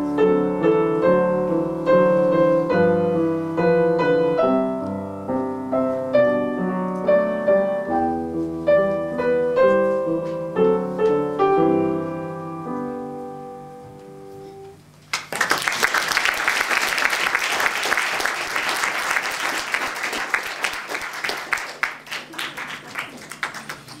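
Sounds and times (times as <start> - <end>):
piano chords ringing: 0.0 - 14.8
audience applause: 15.1 - 24.0.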